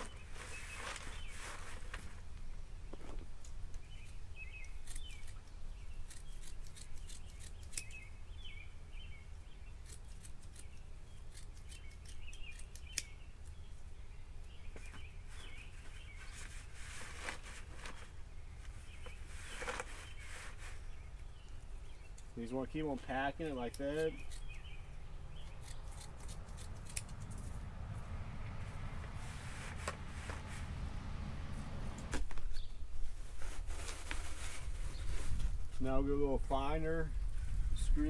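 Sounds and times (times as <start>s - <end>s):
birds chirping: 0.0s - 2.2s, 2.8s - 33.0s
scissors snipping: 4.6s - 8.0s, 9.8s - 13.6s, 25.4s - 27.6s.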